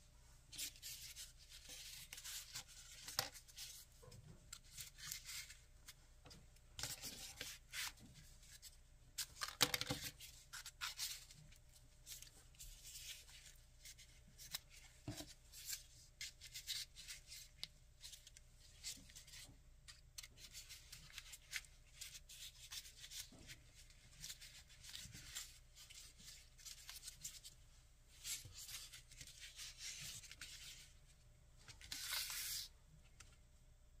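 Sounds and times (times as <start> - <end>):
folded paper rustling: 31.7 - 32.7.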